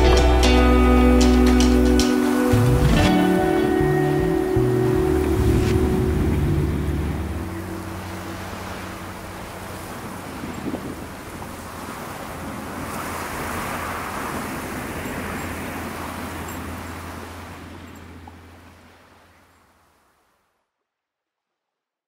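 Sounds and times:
low steady hum: 0.0 - 12.2
sea surf: 0.0 - 20.2
wind: 0.0 - 21.6.

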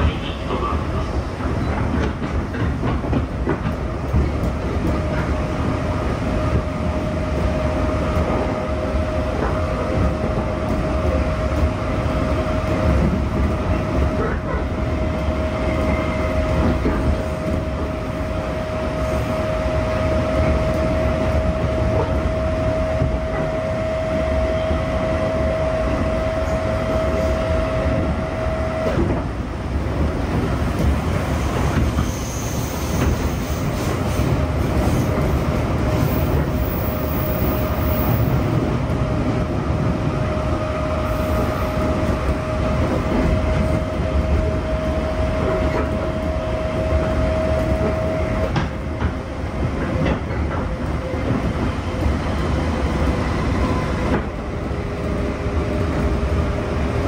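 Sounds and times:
train wheels rumbling: 0.0 - 57.0
rail-joint clicks: 1.4 - 5.4, 15.8 - 17.8, 45.4 - 52.1, 53.6 - 54.4.

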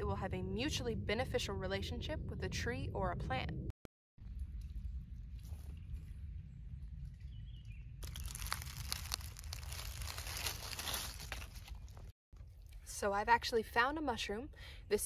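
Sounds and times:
steady low rumble: 0.0 - 11.2
dry leaves crackling and rustling: 8.0 - 12.1.

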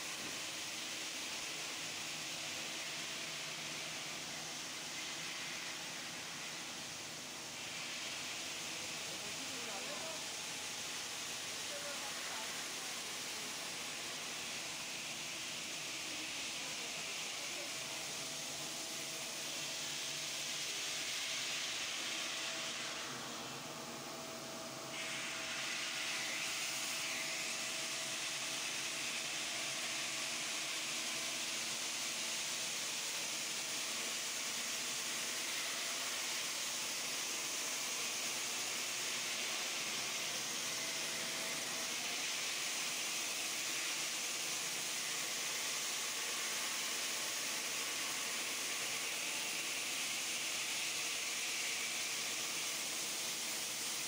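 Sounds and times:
faint saw whine: 10.8 - 33.3.

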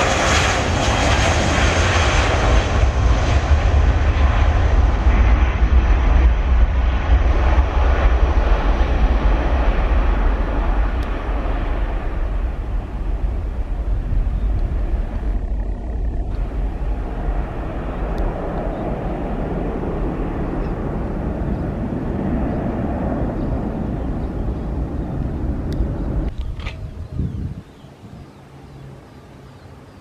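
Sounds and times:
jet engines roaring: 0.0 - 27.0.

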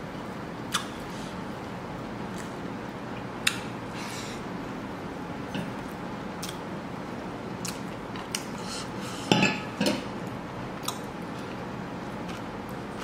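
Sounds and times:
tableware clinking: 9.3 - 10.0.

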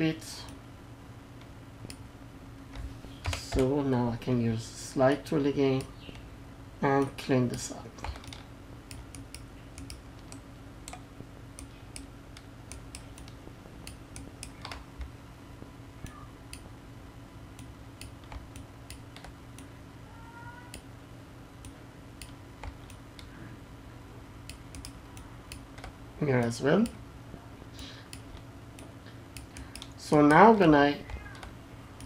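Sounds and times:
steady low hum: 0.0 - 32.0
mouse and keyboard clicks: 8.0 - 11.0.

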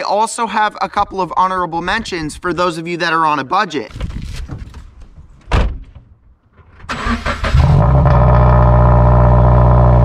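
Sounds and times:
car engine starting and idling: 6.7 - 10.0.

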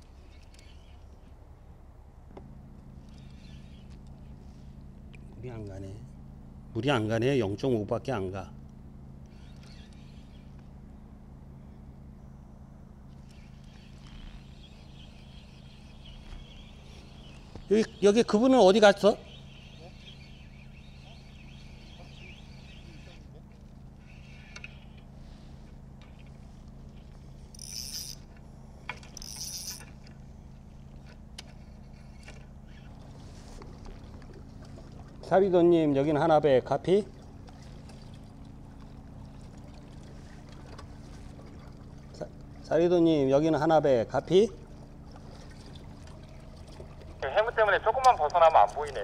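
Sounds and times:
low motor hum: 0.0 - 49.0
fishing reel cranking: 3.0 - 3.9, 9.2 - 10.6, 13.2 - 23.3, 24.0 - 25.0, 27.5 - 28.3, 29.1 - 29.9.

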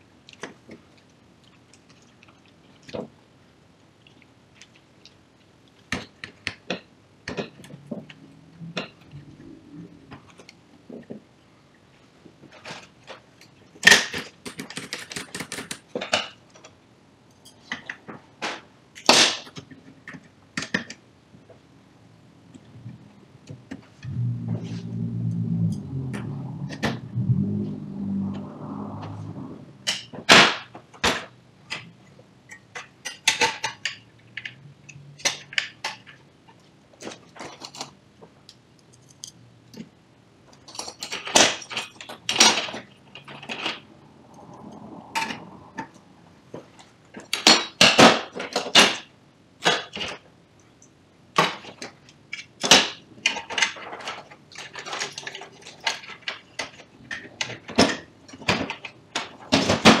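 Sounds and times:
plastic and metal parts clattering: 51.4 - 60.0.

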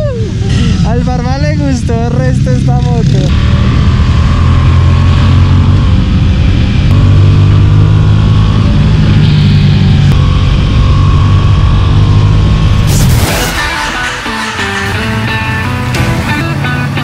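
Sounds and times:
motorcycle engine running: 0.3 - 17.0.

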